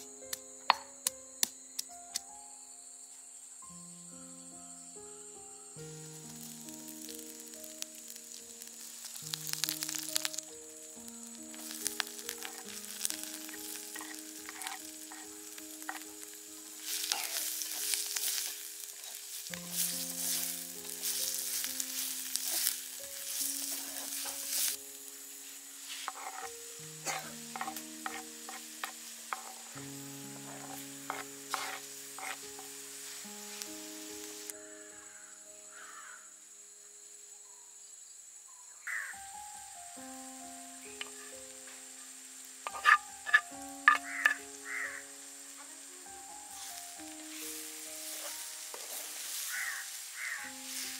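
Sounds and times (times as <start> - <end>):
soft background music: 0.0 - 37.5, 38.9 - 50.9
onions sizzling in oil: 5.8 - 34.6, 40.4 - 50.9
wooden spoon scraping pot: 11.6 - 16.1, 16.9 - 19.2, 26.0 - 29.7, 30.4 - 32.7, 42.7 - 44.4.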